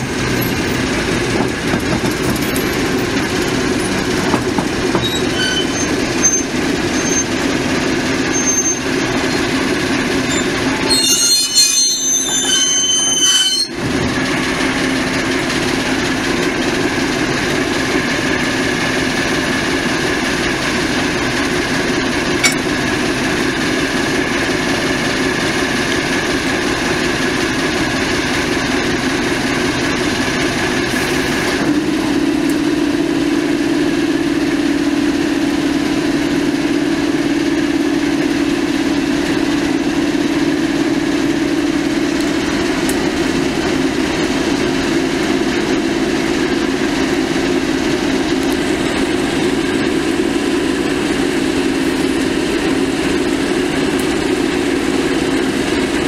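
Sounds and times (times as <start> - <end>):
diesel locomotive engine idling: 0.0 - 56.0
high-pitched metallic squeal: 4.9 - 7.4, 8.2 - 13.8.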